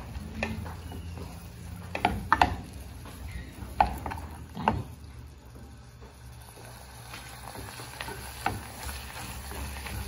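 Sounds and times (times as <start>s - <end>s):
spoon knocking against pot: 1.9s - 2.7s.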